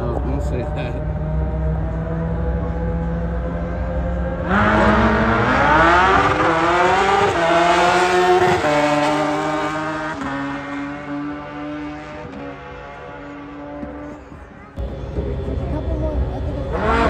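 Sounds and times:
racing car engines accelerating: 0.0 - 17.0.

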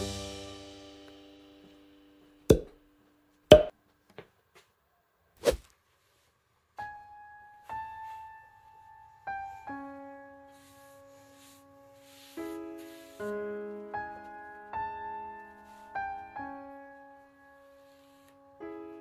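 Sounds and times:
piano notes: 6.8 - 19.0.

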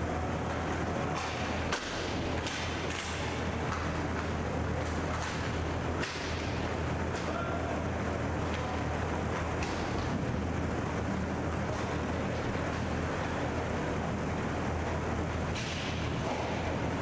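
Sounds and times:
rink hall hum: 0.0 - 17.0
hockey sticks and puck clacking: 0.4 - 7.4, 8.4 - 10.2, 14.9 - 16.8.

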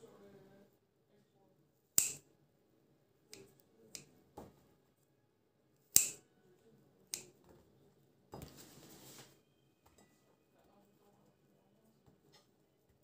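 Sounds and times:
scissors snipping dough: 1.9 - 2.3, 3.3 - 4.2, 5.8 - 6.3, 7.1 - 7.5
scraping rustle: 8.4 - 9.4.

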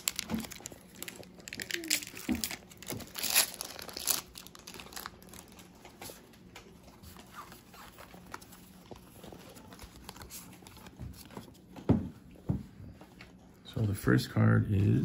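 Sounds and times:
foil wrapper crinkling and tearing: 0.0 - 6.0
cards rustling and clicking: 0.0 - 11.8.

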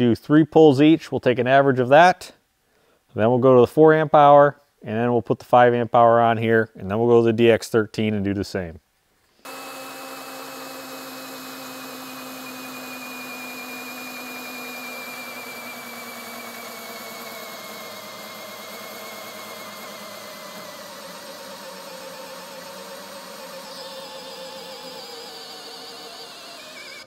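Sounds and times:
cordless drill motor whine: 9.5 - 27.0.

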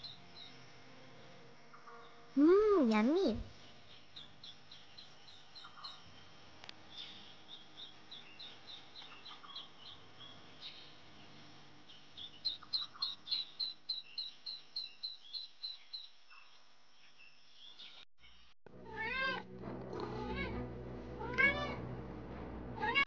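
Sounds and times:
small animal chirping: 12.2 - 16.5.

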